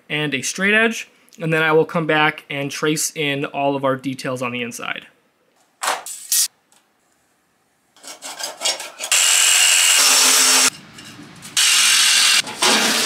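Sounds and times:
power cutter cutting sheet metal: 0:08.6 - 0:10.7, 0:11.6 - 0:13.0.

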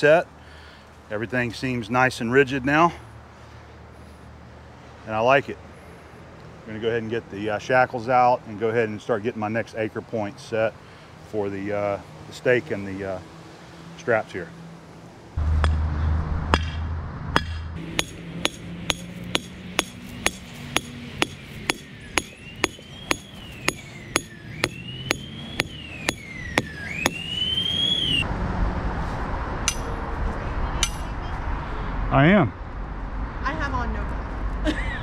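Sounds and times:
sledgehammer striking steel stake: 0:16.5 - 0:27.2, 0:29.7 - 0:30.0, 0:30.8 - 0:31.0.

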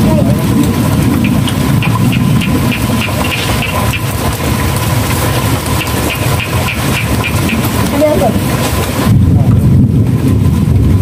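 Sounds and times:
small engine idling: 0:00.0 - 0:09.1
high-pitched ticking: 0:00.9 - 0:08.5.

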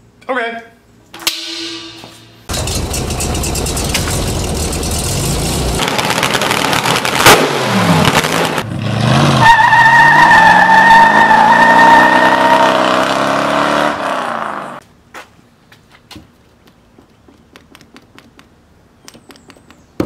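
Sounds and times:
car exhaust rumbling at idle: 0:02.5 - 0:05.8
car engine accelerating: 0:02.5 - 0:14.8
racing engines revving: 0:02.5 - 0:14.8.

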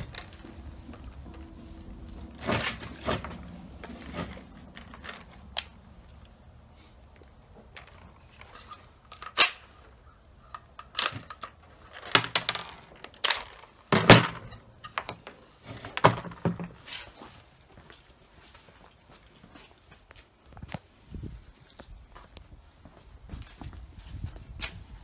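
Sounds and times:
rifle handling clicks and clunks: 0:02.3 - 0:06.4, 0:07.1 - 0:17.0.

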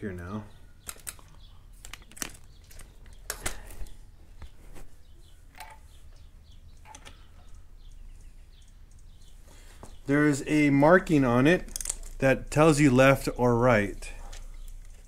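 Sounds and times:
handling clicks and knocks: 0:05.5 - 0:10.0, 0:11.1 - 0:12.6.

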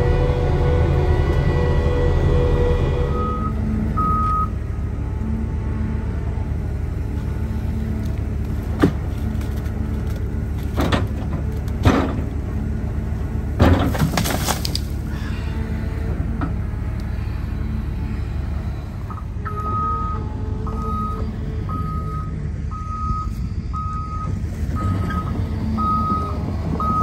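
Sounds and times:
hydraulic whine: 0:00.0 - 0:13.8, 0:14.9 - 0:27.0
excavator diesel engine droning: 0:00.0 - 0:27.0
metal clanks and knocks: 0:10.6 - 0:12.4, 0:13.6 - 0:14.8.

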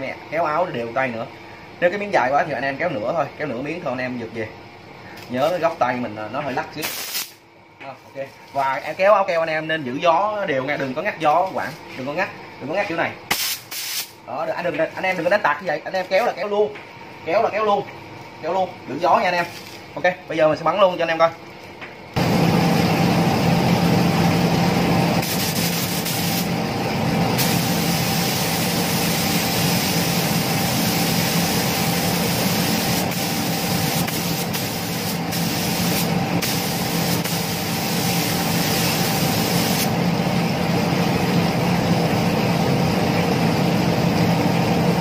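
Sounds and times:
steady machine hum: 0:00.0 - 0:45.0
spray gun hissing: 0:06.8 - 0:07.4, 0:13.3 - 0:14.1, 0:25.2 - 0:26.5, 0:27.4 - 0:40.0.

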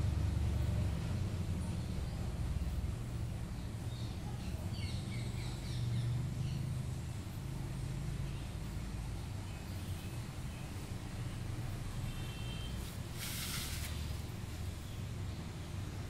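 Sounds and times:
bird chirping: 0:03.5 - 0:06.9.

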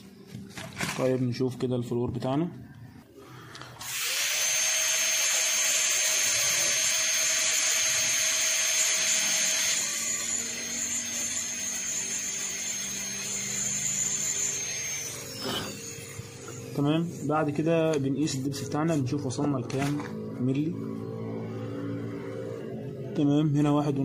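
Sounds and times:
dental drill whine: 0:03.8 - 0:19.1, 0:20.0 - 0:23.0.

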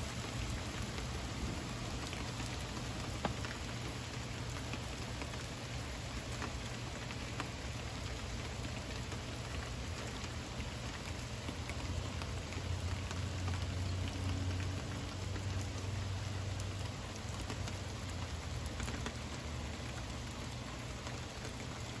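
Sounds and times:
heavy rain falling: 0:00.0 - 0:22.0.

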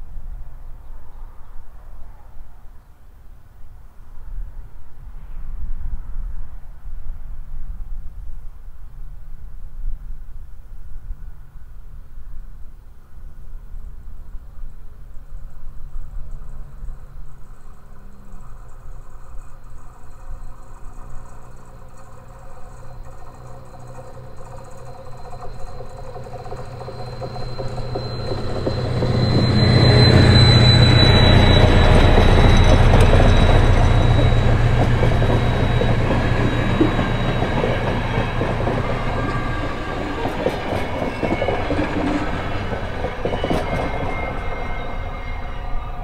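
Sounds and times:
diesel locomotive passing: 0:15.4 - 0:46.0
train coaches rolling on rails: 0:15.5 - 0:46.0.

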